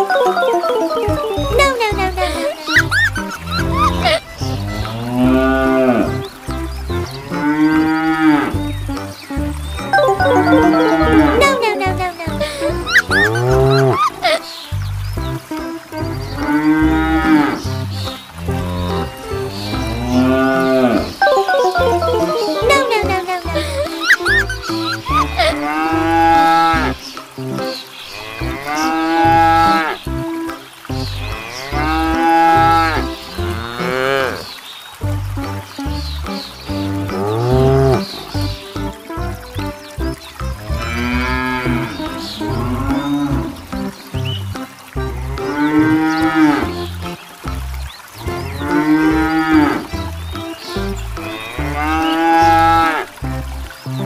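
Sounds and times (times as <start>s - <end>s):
tune with stepping bass line: 9.8s - 12.7s.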